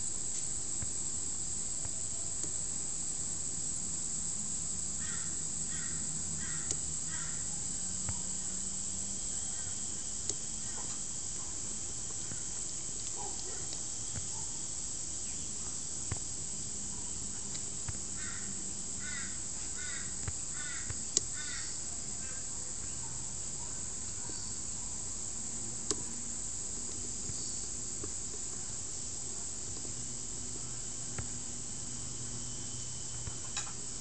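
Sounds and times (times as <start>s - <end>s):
steady hiss: 0.0s - 34.0s
sharp clicks: 20.2s - 21.3s, 25.8s - 26.1s.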